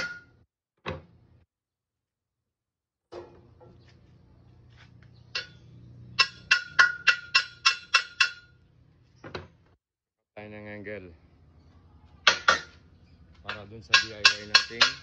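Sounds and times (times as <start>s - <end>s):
hammer tapping on metal: 6.2s - 8.5s, 13.5s - 15.0s.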